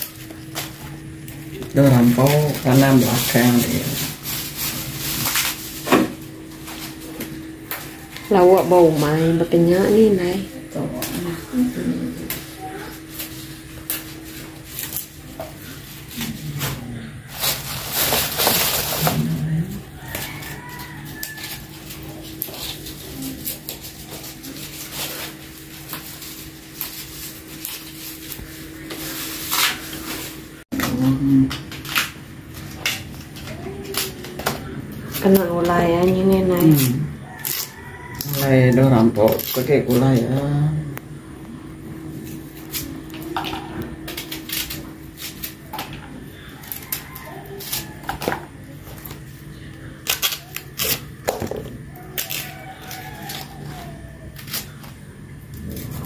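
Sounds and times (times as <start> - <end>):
leaves rustling and crackling: 0.0 - 30.8, 31.4 - 40.5.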